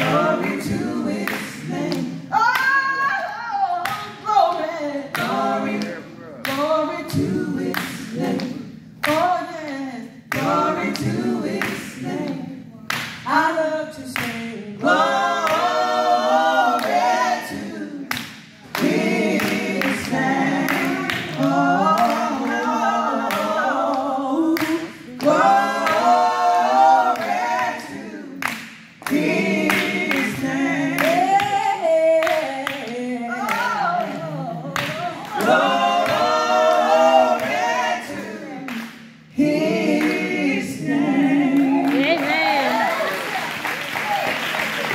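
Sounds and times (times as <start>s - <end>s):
women singing in harmony: 0.0s - 43.4s
hand claps: 14.2s - 14.5s, 18.1s - 20.1s, 28.4s - 30.4s.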